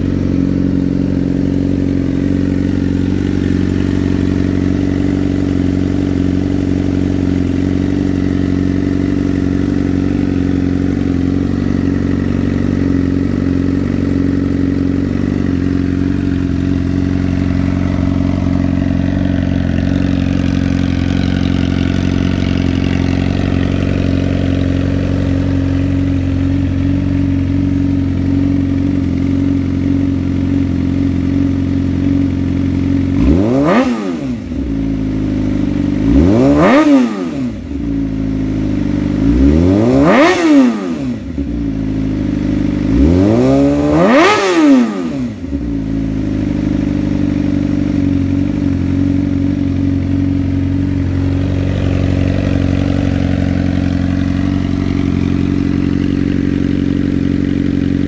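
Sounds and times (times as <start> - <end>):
motorcycle engine idling: 0.0 - 58.0
motorcycle throttle revs: 0.0 - 58.0.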